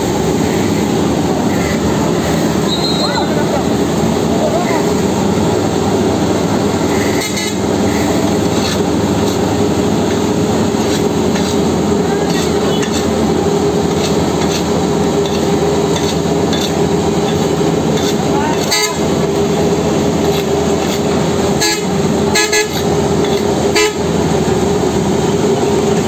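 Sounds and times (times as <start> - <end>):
diesel engine droning: 0.0 - 26.0
rakes and shovel scraping asphalt: 6.9 - 19.1, 20.2 - 23.9.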